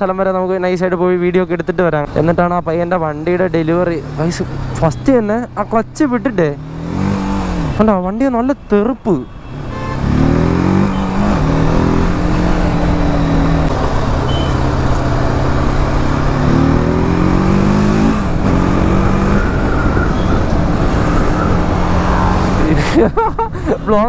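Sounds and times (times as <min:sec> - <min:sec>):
motorcycle engine accelerating: 0:06.5 - 0:07.8, 0:10.0 - 0:22.8.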